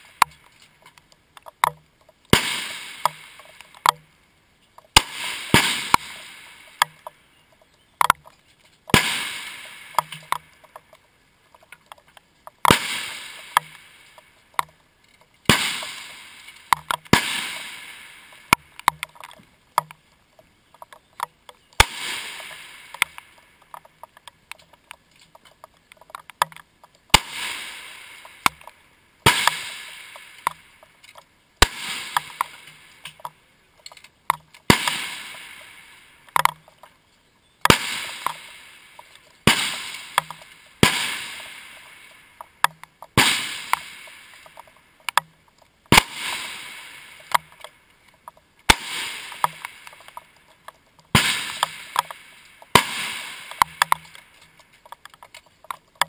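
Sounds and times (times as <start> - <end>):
rifle shots: 2.3 - 3.6, 4.9 - 7.0, 8.9 - 10.5, 12.6 - 14.2, 15.4 - 18.8, 21.8 - 23.5, 27.1 - 30.7, 31.6 - 33.0, 34.7 - 36.4, 37.7 - 42.2, 43.2 - 44.7, 45.9 - 47.6, 48.7 - 50.2, 51.1 - 54.4.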